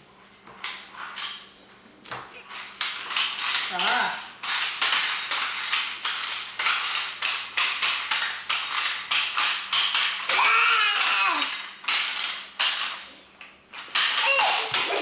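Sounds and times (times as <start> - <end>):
toddler's voice: 10.3 - 11.5, 14.2 - 15.0.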